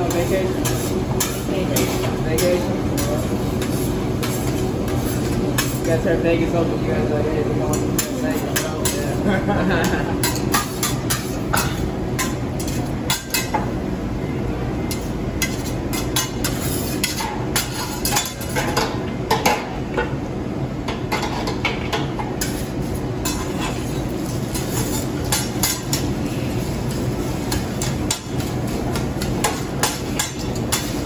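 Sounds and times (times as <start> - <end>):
metal spatulas scraping on griddle: 0.0 - 6.0, 9.8 - 13.5, 14.9 - 18.9, 22.4 - 31.0
low background hum: 0.0 - 31.0.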